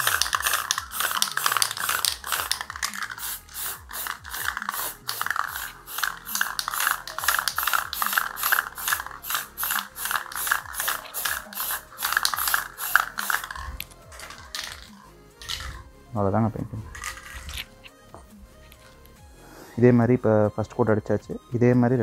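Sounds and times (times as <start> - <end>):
spray can ball rattling: 0.0 - 15.9, 16.5 - 19.2.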